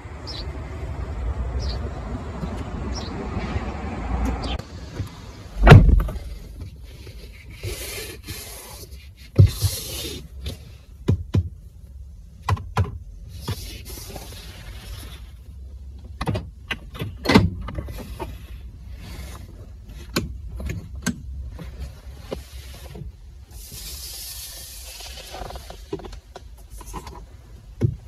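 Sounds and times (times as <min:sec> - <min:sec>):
hiss: 0:23.5 - 0:25.2.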